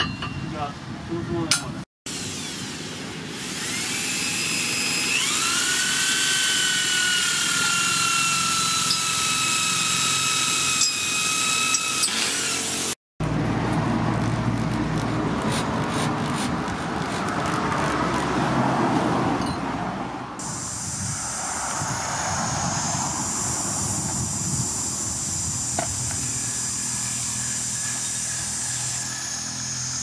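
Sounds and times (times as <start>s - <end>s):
electric drill drilling wood: 2.1s - 13.0s, 22.5s - 30.0s.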